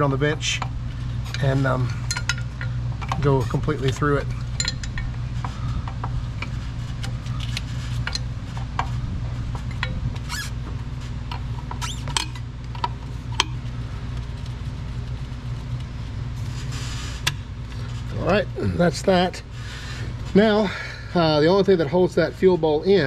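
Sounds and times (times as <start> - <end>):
steady low hum: 0.0 - 23.0
short squeaks: 10.2 - 10.6, 11.7 - 12.4.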